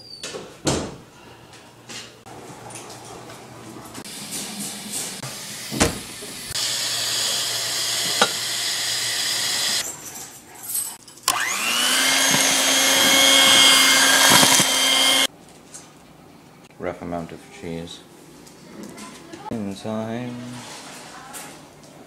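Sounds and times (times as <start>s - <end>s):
electric hand mixer whining: 5.2s - 9.8s, 11.3s - 15.3s.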